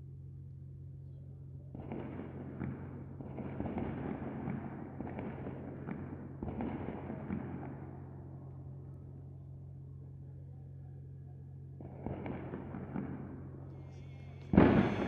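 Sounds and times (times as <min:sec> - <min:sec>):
low steady hum: 0:00.0 - 0:15.0
fireworks crackling: 0:14.4 - 0:15.0.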